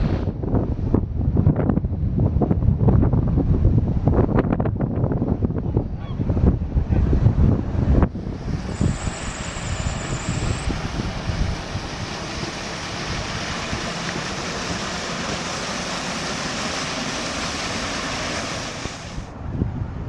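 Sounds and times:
wind gusting against microphone: 0.0 - 20.0
car driving through floodwater: 8.1 - 19.5.

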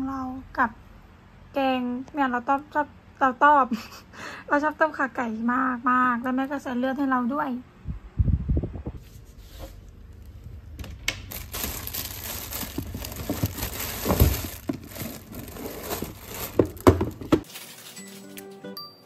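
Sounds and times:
bubble wrap crinkling: 9.4 - 18.7
package knocking on cabinet: 16.0 - 17.5.

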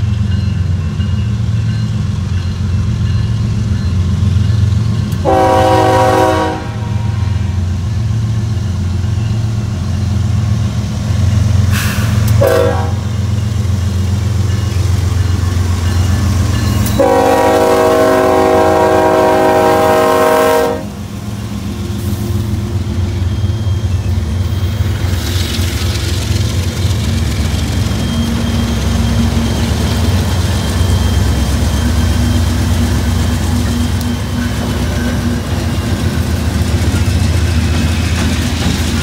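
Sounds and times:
diesel locomotives rumbling: 0.0 - 39.0
train horn chime blast: 5.2 - 7.5, 12.4 - 13.3, 16.5 - 21.1.

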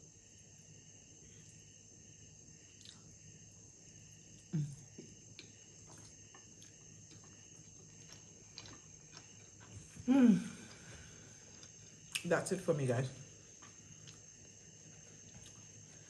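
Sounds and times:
faint high-pitched whine: 0.0 - 16.0
soft chewing and mouth clicks: 2.7 - 3.2, 4.3 - 12.3, 13.4 - 16.0
person humming low: 4.5 - 4.9, 10.0 - 10.8.

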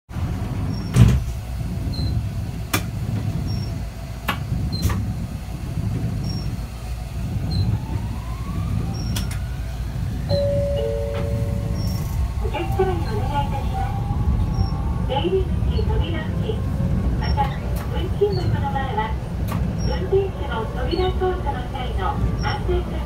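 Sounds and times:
tram running rumble: 0.1 - 23.0
two-note chime: 10.3 - 12.0.

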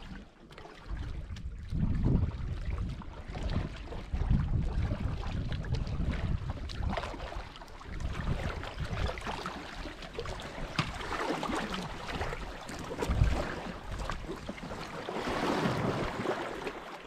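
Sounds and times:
paddles splashing in water: 0.0 - 17.0
wind rumbling on microphone: 0.8 - 16.7
water dripping from paddles: 9.5 - 13.2.

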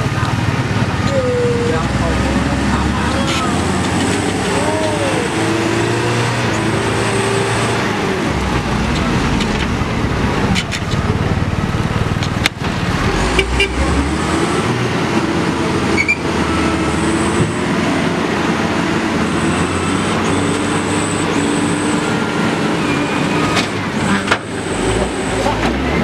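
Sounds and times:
diesel engines running: 0.0 - 26.0.

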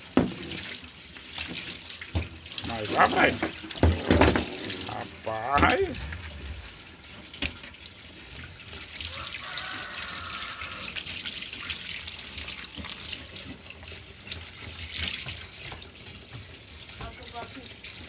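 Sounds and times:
tap water splashing on counter: 0.1 - 0.8, 1.4 - 6.0, 14.2 - 18.0.

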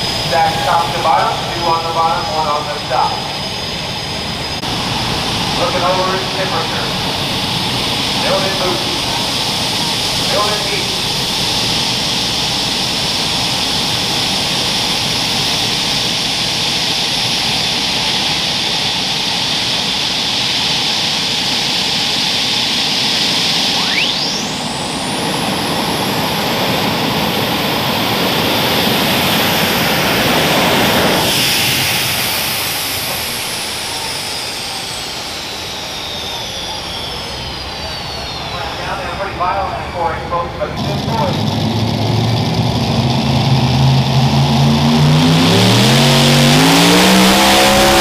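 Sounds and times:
tractor engine running: 0.0 - 18.1, 30.2 - 48.0
turbocharger whine: 0.0 - 48.0.

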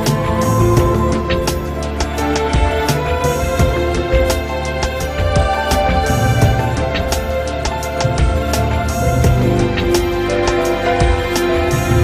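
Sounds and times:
soft instrumental music: 0.0 - 12.0.

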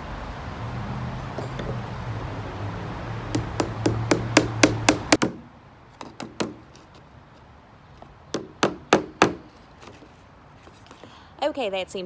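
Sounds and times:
hammer tapping a nail: 3.3 - 5.4, 6.0 - 6.6, 8.3 - 9.4.

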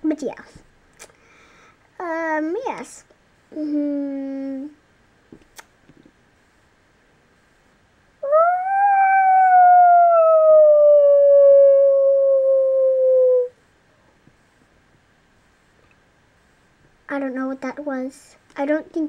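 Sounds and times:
animal howl: 8.2 - 13.5.

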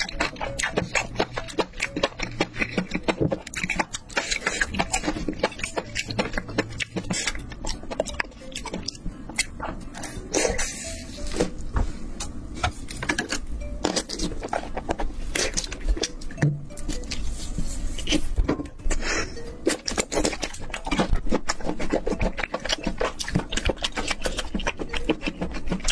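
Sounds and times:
chewing and wet mouth smacking: 0.0 - 11.5, 19.4 - 25.9.

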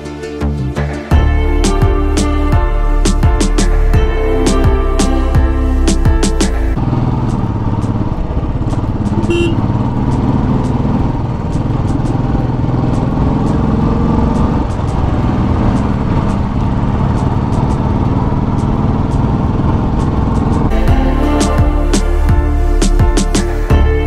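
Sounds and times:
motorcycle engine running: 1.1 - 23.9.

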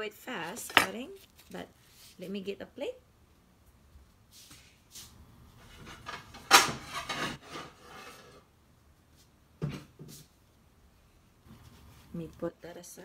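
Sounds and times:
plate rubbing and scraping: 5.6 - 8.5.

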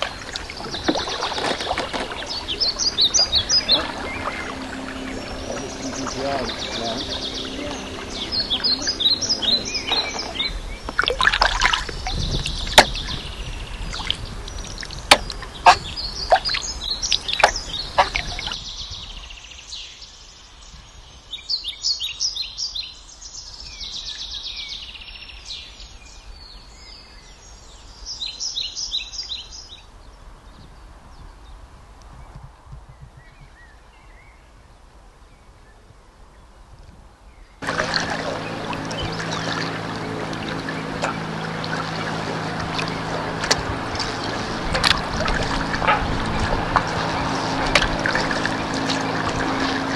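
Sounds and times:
water noise: 0.0 - 19.3, 37.6 - 49.9
songbirds chirping: 0.0 - 49.9
sharp knocks: 15.1 - 15.9.

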